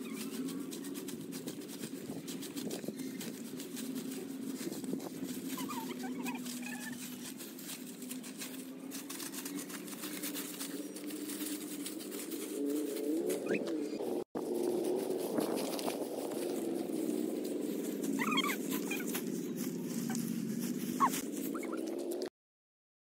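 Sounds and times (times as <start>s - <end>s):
brooms sweeping dry leaves: 0.0s - 22.2s
steady low drone: 7.1s - 22.3s.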